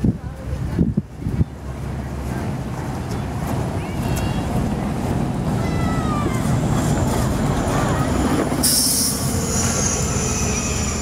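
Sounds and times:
streetcar wheels squealing: 3.2 - 11.0
loud hiss: 8.6 - 11.0.

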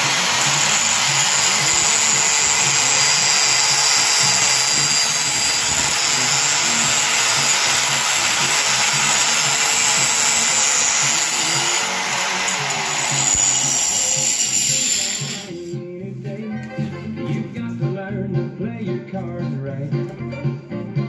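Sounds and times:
angle grinder grinding steel: 0.0 - 15.7.

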